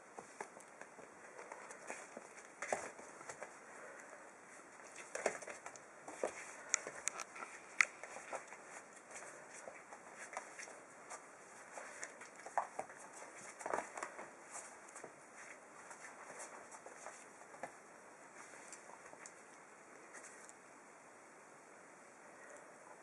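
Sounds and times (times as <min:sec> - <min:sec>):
paw patter: 0:04.8 - 0:17.8.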